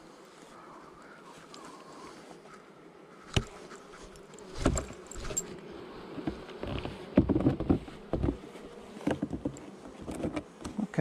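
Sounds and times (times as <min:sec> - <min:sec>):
bees buzzing: 0:00.0 - 0:11.0
knocking on hive equipment: 0:06.2 - 0:10.7.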